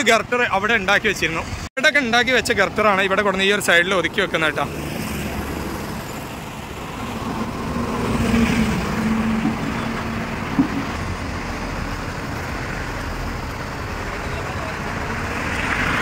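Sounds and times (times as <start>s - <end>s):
highway traffic passing: 0.0s - 16.0s
vehicle engine drone: 3.1s - 16.0s.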